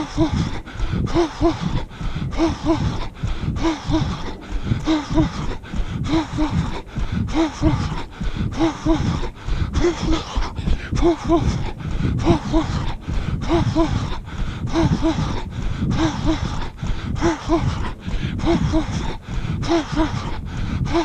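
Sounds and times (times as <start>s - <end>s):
runner's heavy breathing: 0.0s - 21.0s
wind rumble on microphone: 0.0s - 21.0s.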